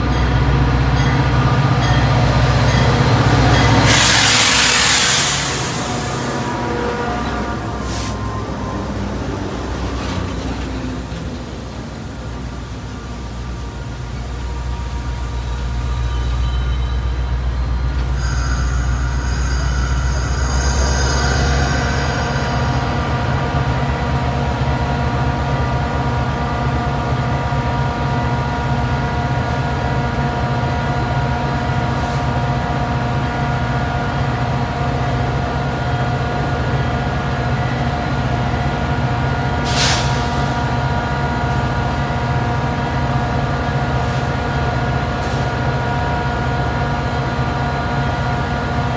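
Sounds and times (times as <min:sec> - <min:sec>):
train hum and rumble: 0:00.0 - 0:48.9
train brakes squealing: 0:01.0 - 0:09.4, 0:14.1 - 0:23.4, 0:39.4 - 0:41.2
air hiss: 0:03.9 - 0:06.5, 0:18.2 - 0:22.6, 0:39.6 - 0:40.6.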